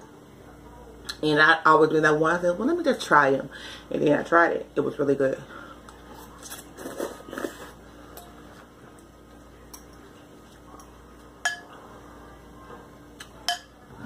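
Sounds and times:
noodles being slurped: 0:06.1 - 0:07.8
fork clinking glass bowl: 0:10.8 - 0:11.8, 0:13.4 - 0:13.8.

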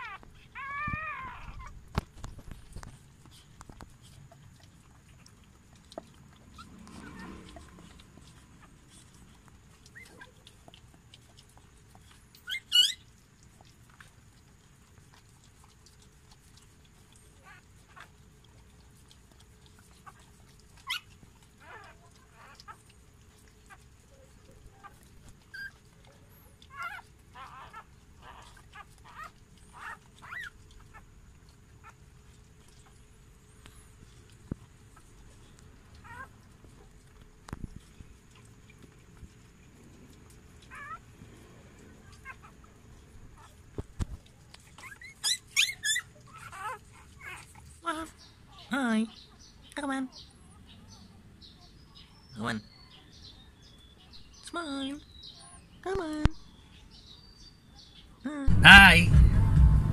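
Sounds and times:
puppy squeaks: 0:00.0 - 0:01.8, 0:12.4 - 0:13.1, 0:20.8 - 0:22.7, 0:24.8 - 0:25.8, 0:26.6 - 0:31.0, 0:36.0 - 0:36.3, 0:40.7 - 0:41.0, 0:44.6 - 0:47.6
puppies nursing wet clicks: 0:00.0 - 0:58.2.

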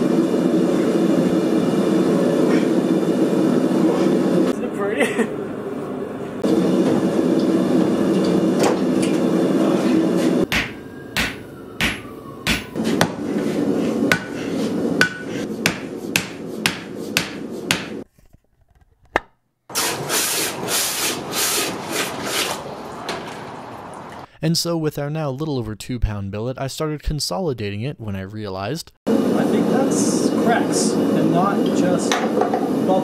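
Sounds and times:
hammer striking metal on anvil: 0:10.5 - 0:13.2, 0:14.1 - 0:14.4, 0:15.0 - 0:18.0.

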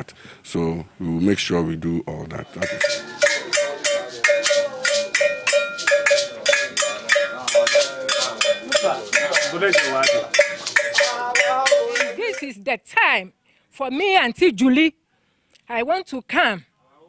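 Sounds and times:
metal bell beaten rapidly: 0:02.6 - 0:12.6.

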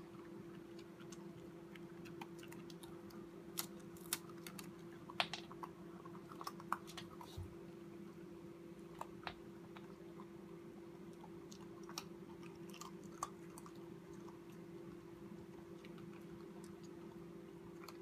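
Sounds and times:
puppy crunching hard biscuit: 0:00.0 - 0:07.3, 0:11.2 - 0:15.0
faint steady hum: 0:00.0 - 0:18.0.

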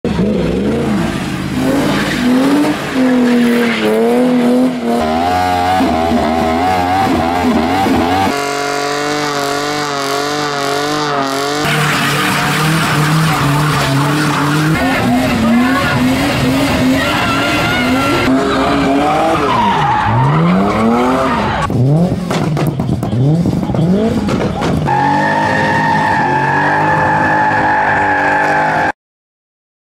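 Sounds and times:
car engine revving high: 0:00.1 - 0:28.9
tyres squealing on tarmac: 0:08.3 - 0:21.7, 0:24.8 - 0:29.0.

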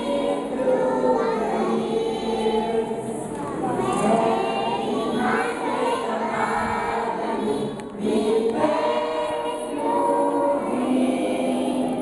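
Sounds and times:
children's choir singing a hymn: 0:00.0 - 0:12.0.

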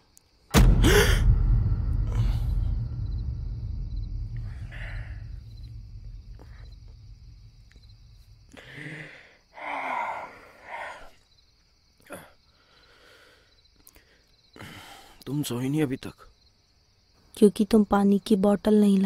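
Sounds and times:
low rumbling drone: 0:00.6 - 0:08.8
person breathing heavily: 0:00.7 - 0:03.3, 0:04.3 - 0:07.5, 0:08.4 - 0:11.2.

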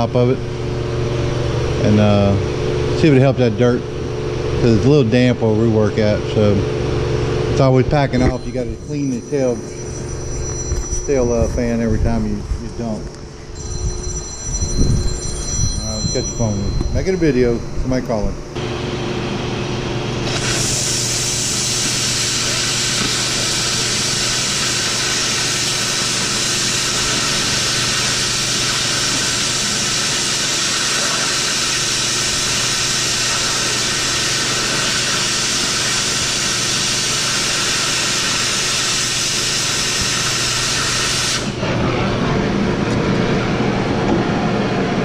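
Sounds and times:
cutting torch hissing: 0:20.2 - 0:41.6.

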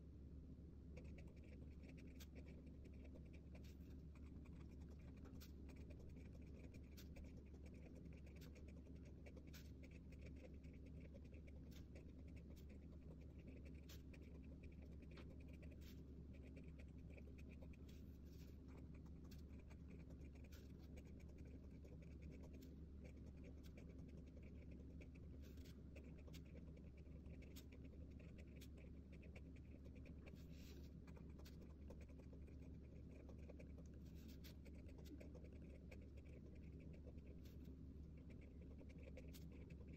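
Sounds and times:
steady low hum: 0:00.0 - 0:39.9
pen scratching on paper: 0:01.0 - 0:39.9.

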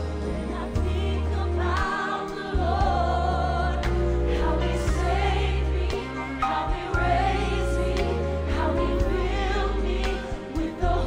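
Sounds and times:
choir singing: 0:00.0 - 0:11.0
women singing gospel: 0:00.0 - 0:11.0
deep bass line: 0:07.0 - 0:11.0.

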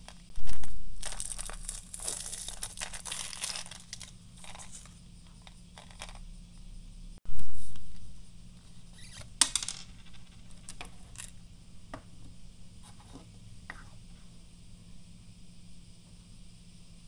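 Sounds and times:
candies rattling onto wooden table: 0:00.4 - 0:06.2.

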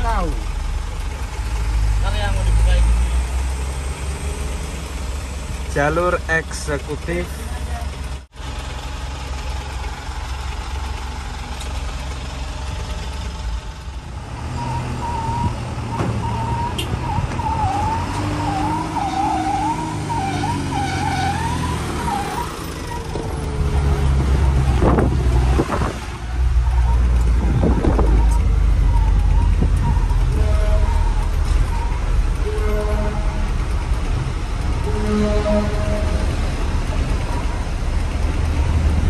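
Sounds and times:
diesel truck engine rumbling: 0:00.0 - 0:39.0
high warbling tone: 0:26.7 - 0:36.4.

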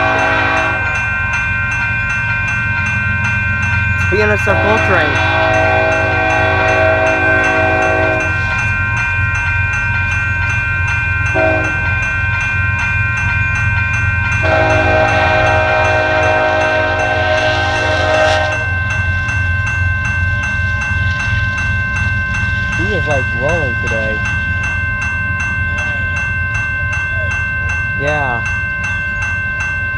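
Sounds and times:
locomotive horn blasts: 0:00.0 - 0:01.0, 0:04.2 - 0:08.5, 0:11.3 - 0:12.0, 0:14.4 - 0:18.8
crossing bell ringing: 0:00.0 - 0:29.9.

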